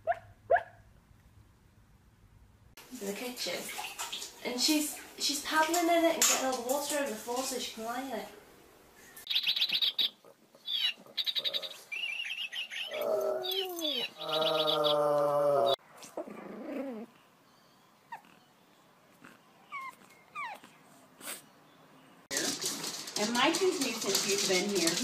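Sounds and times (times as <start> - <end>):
dog howling: 12.9 - 15.8.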